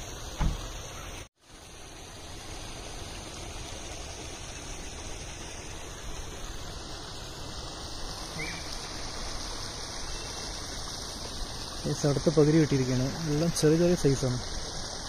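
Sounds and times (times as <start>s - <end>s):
outdoor background hiss: 0.0s - 15.0s.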